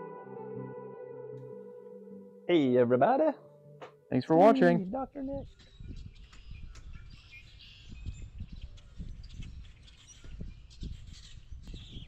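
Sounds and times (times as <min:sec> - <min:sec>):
small birds chirping: 0:04.1 - 0:12.0.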